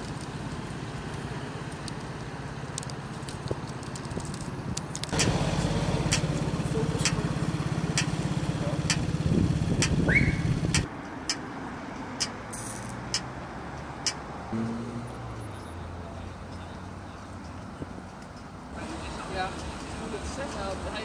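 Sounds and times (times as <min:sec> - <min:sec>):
traffic rumble: 0:00.0 - 0:21.0
vehicle engine running: 0:05.1 - 0:10.9
sharp ticks: 0:06.1 - 0:07.3, 0:07.9 - 0:11.5, 0:12.2 - 0:14.2.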